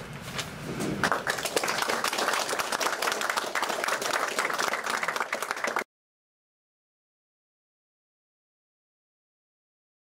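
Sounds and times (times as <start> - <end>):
audience applauding: 1.0 - 5.9.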